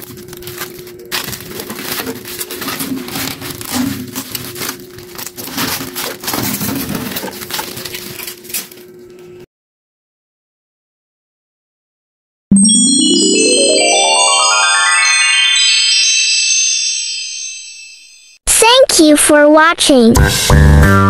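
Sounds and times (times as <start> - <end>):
plastic film crinkling: 0.0 - 9.3.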